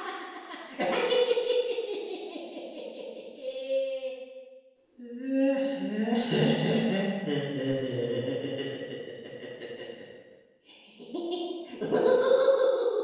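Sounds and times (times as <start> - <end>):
creepy clown laugh: 0.0 - 3.7, 5.6 - 10.1, 10.9 - 13.0.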